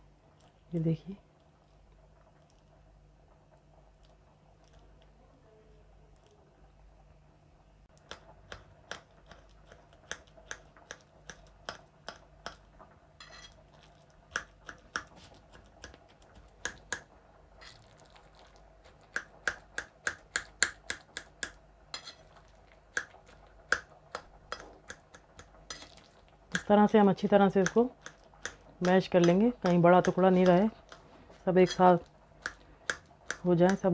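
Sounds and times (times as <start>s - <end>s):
utensil tapping on plate: 14.3s - 17.1s, 19.0s - 22.2s, 22.9s - 26.7s, 27.5s - 31.0s.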